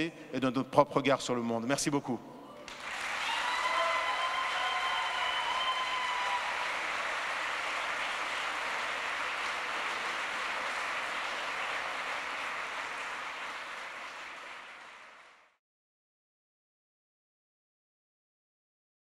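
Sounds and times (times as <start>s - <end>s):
large crowd applauding: 2.7s - 15.6s.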